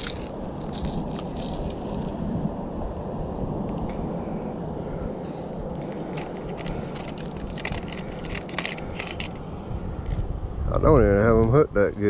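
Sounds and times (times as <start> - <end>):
wind rumble on microphone: 0.0 - 12.0
small clicks and rattles: 5.8 - 9.4.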